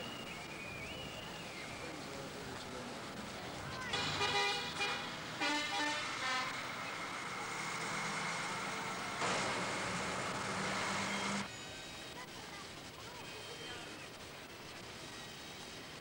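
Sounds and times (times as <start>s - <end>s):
street traffic noise: 0.0s - 16.0s
car horns tooting: 3.9s - 6.7s.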